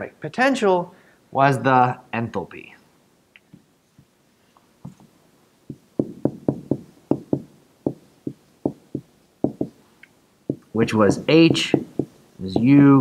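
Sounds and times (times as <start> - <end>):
marker tapping on whiteboard: 5.7 - 9.8, 10.5 - 12.8.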